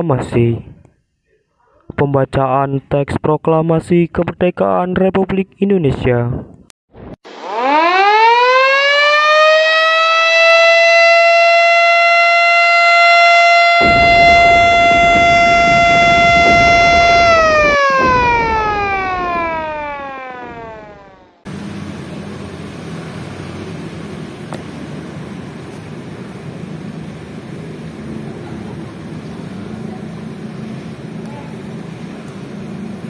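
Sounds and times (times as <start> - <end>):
siren winding: 7.4 - 21.4
steady low hum: 13.8 - 33.0.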